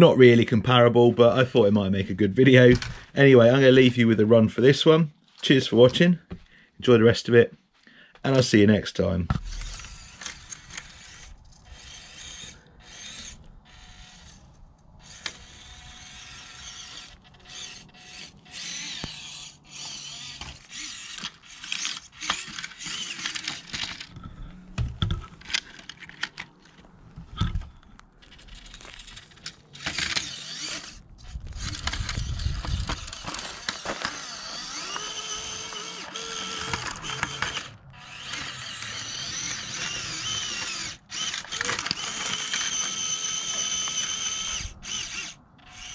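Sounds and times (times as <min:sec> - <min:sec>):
toy car motor whining: 0:09.3 - 0:24.2, 0:28.2 - 0:45.9.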